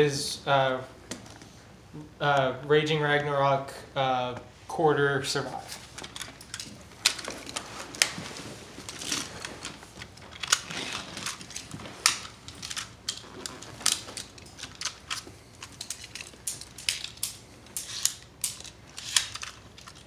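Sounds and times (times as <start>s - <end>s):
rustling crackles: 5.5s - 20.0s.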